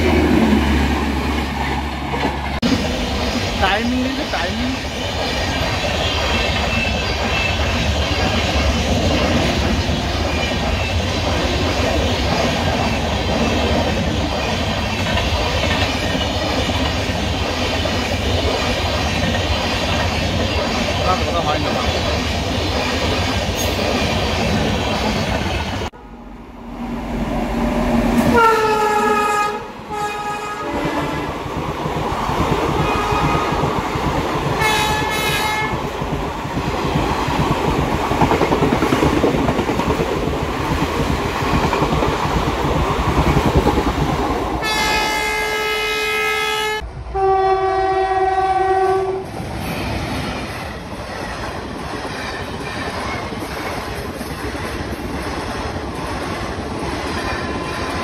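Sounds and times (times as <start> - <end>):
train wheels clattering over rails: 0.0 - 26.0, 30.9 - 44.9, 49.3 - 58.0
train horn: 28.2 - 31.3, 32.8 - 33.6, 34.6 - 35.8, 44.6 - 49.3.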